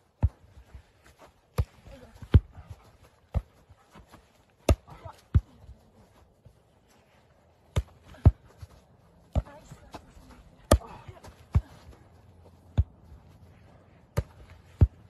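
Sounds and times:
hand slapping volleyball: 0:10.6 - 0:11.6, 0:14.1 - 0:15.0.

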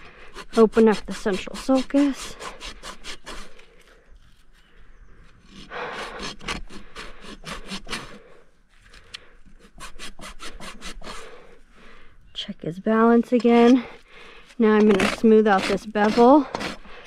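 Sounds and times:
hoof rasp filing: 0:00.0 - 0:03.9, 0:05.2 - 0:08.3, 0:09.4 - 0:11.5, 0:14.8 - 0:17.0.

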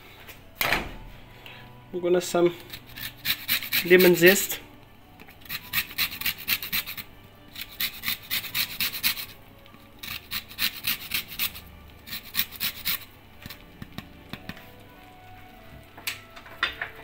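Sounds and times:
lemon rasping on a grater: 0:02.7 - 0:04.5, 0:05.4 - 0:09.4, 0:10.0 - 0:13.1.

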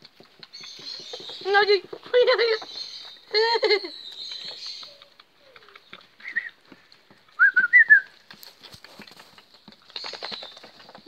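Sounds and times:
puppies whining and squeaking: 0:02.3 - 0:06.4.

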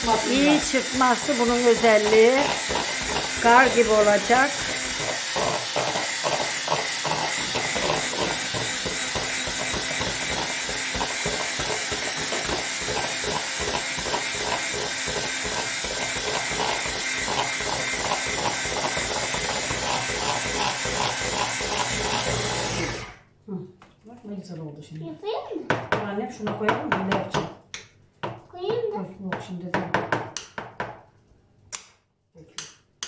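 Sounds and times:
electric blender whisking in bowl: 0:00.0 - 0:23.2.

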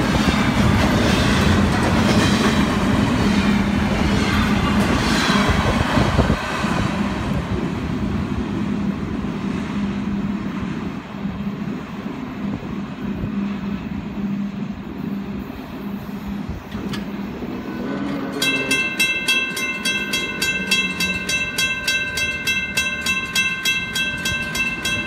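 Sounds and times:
train passing rumble: 0:00.0 - 0:25.0
crossing warning bell ringing: 0:17.2 - 0:25.0.

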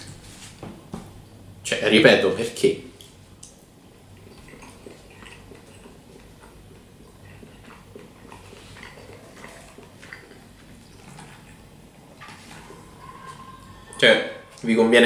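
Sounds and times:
low steady hum: 0:00.0 - 0:15.0
chewing: 0:03.0 - 0:14.6.

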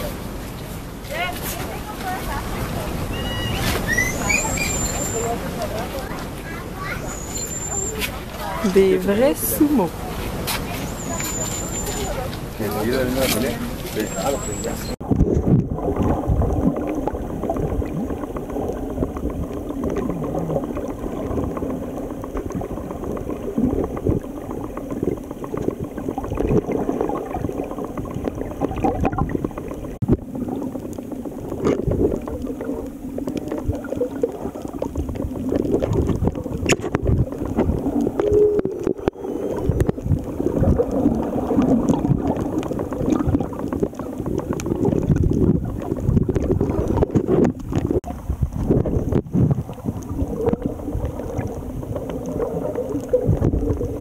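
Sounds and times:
underwater sloshing and gurgling: 0:00.0 - 0:54.0
faint clicks: 0:27.9 - 0:47.9.

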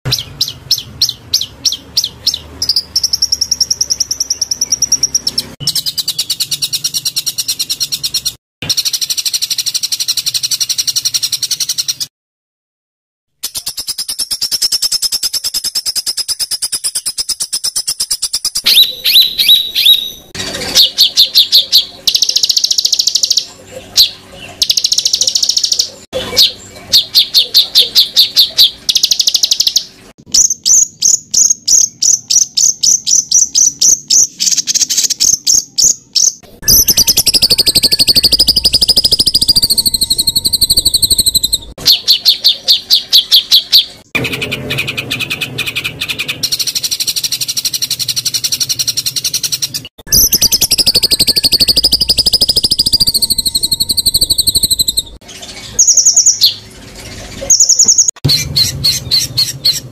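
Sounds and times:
bird rapid sharp repeated notes: 0:13.4 - 0:55.2, 0:57.5 - 0:59.9
bird high wavering warbling: 0:18.5 - 0:30.0, 0:31.7 - 0:59.9.

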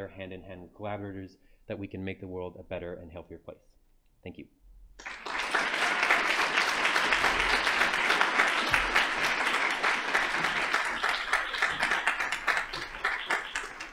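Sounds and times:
audience applauding: 0:05.0 - 0:13.9.

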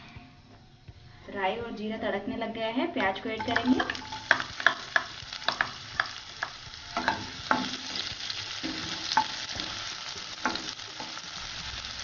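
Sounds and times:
onion sizzling in hot oil: 0:03.3 - 0:12.0.

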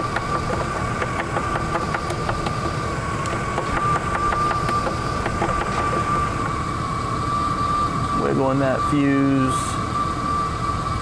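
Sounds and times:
van engine idling: 0:00.0 - 0:07.5
high whine: 0:00.0 - 0:11.0.

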